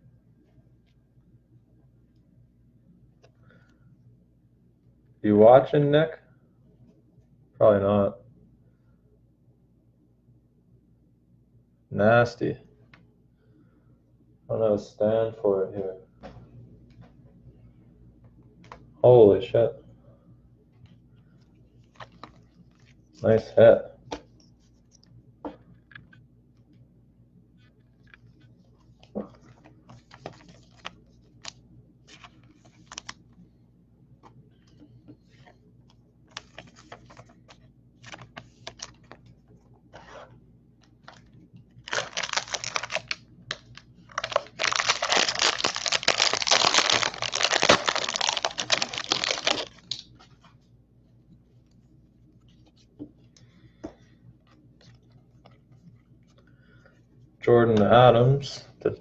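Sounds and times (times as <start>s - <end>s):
foil wrapper crinkling and tearing: 41.8s - 50.1s.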